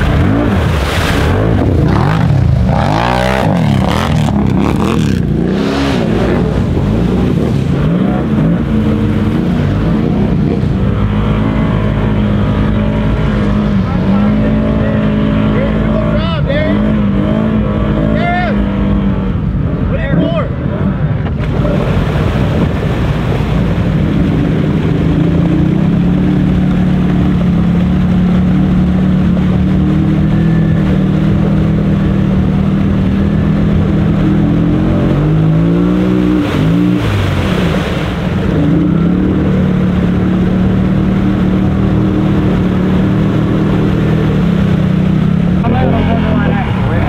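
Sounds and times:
atv engine revving: 0:00.0 - 0:47.0.

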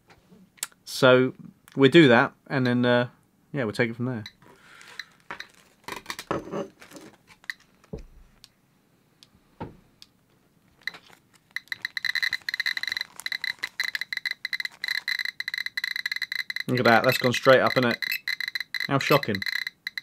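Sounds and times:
soft thumps: 0:09.6 - 0:09.9
geiger counter beeping: 0:11.6 - 0:20.0.

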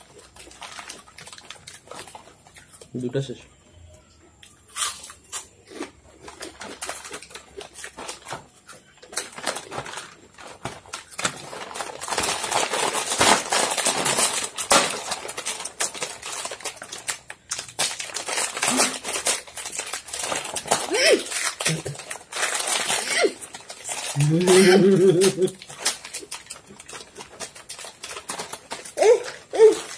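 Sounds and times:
chips crunching: 0:00.0 - 0:03.3, 0:04.4 - 0:29.9
foil packets crinkling: 0:00.0 - 0:03.4, 0:04.7 - 0:29.9
packet tearing open: 0:06.2 - 0:29.9.

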